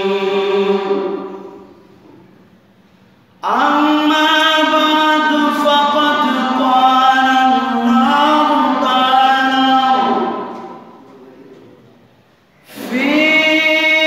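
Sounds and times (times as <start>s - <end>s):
man chanting into a microphone: 3.4s - 11.2s, 12.6s - 14.0s.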